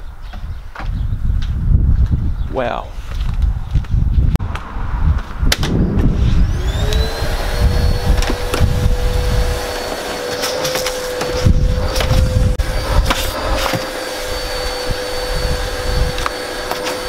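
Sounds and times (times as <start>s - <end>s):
vacuum cleaner motor whine: 6.1s - 17.0s.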